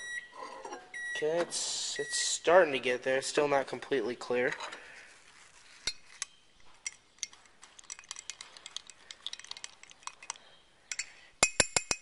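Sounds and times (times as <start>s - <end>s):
metal spoon clinking against glass: 10.9s - 12.0s.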